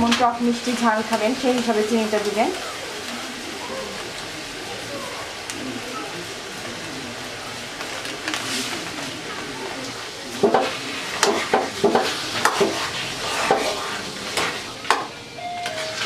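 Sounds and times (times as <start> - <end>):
pickle sizzling in a pan: 0.0 - 16.0
metal spatula scraping a pan: 10.6 - 14.6.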